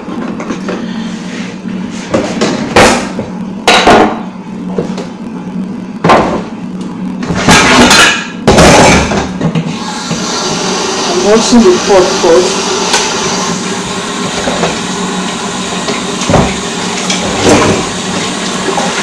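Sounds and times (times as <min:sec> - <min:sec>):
steady hum: 0:00.0 - 0:19.0
pots and utensils clattering: 0:07.3 - 0:09.7.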